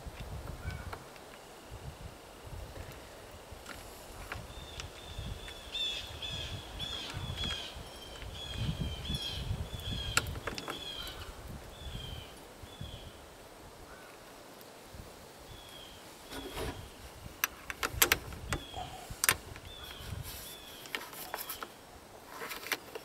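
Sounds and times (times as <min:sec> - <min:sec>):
bird calling: 0:04.5 - 0:13.2, 0:18.5 - 0:21.8.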